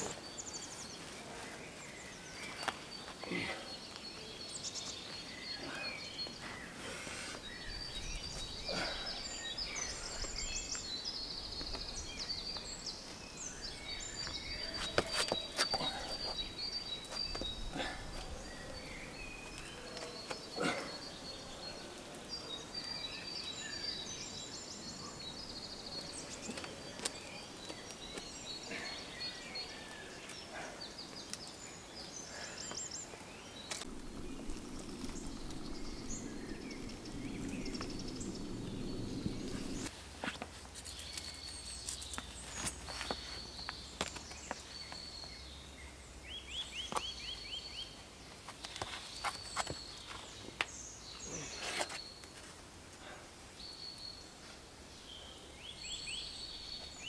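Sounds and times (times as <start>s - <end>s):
small birds chirping and trilling: 0.0s - 57.0s
knocks and scuffs on rock: 14.2s - 16.4s, 48.5s - 50.7s.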